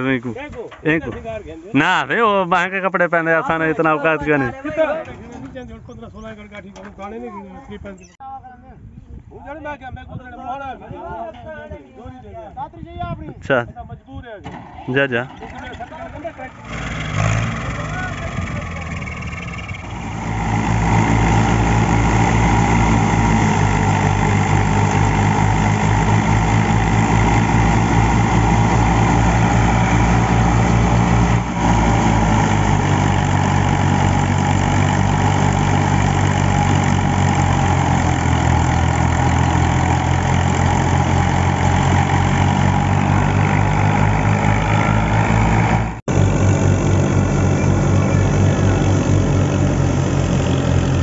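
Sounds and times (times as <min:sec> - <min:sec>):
tractor diesel engine running: 0:14.4 - 0:51.0
thresher drum and fan whirring: 0:15.3 - 0:51.0.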